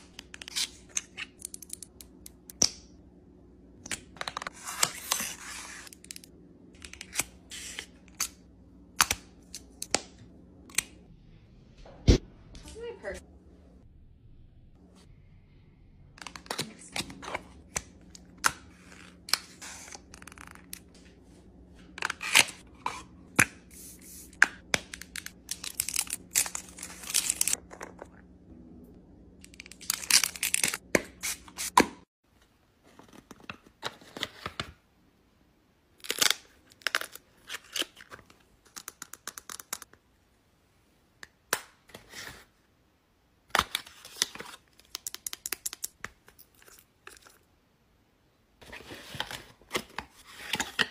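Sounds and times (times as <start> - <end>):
faint low hum: 24.9 - 30.4.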